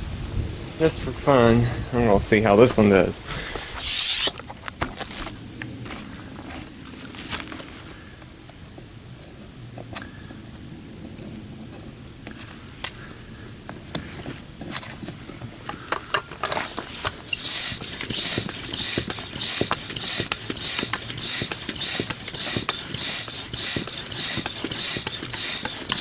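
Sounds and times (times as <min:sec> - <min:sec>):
air pump hissing: 0:03.4 - 0:04.4, 0:16.5 - 0:26.0
hose chuck clicks and rattles: 0:15.6 - 0:26.0.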